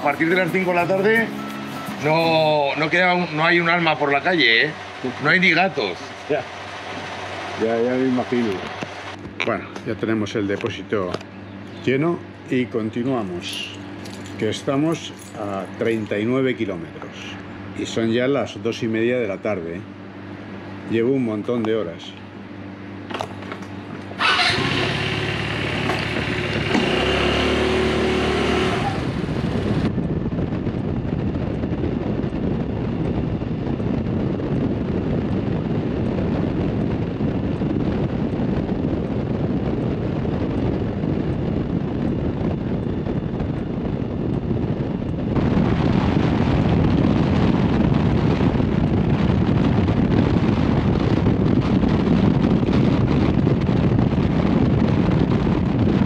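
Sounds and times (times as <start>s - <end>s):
steady sound with held tones: 0.0s - 23.1s
wind rushing over microphone: 0.0s - 56.0s
scooter engine drone: 22.6s - 56.0s.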